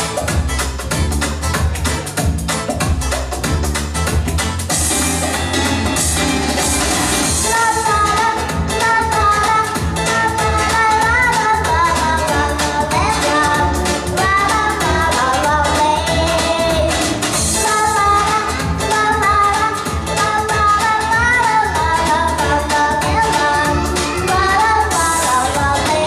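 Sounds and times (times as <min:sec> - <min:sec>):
pop backing track with beat: 0:00.0 - 0:26.0
girl singing into microphone: 0:07.3 - 0:26.0.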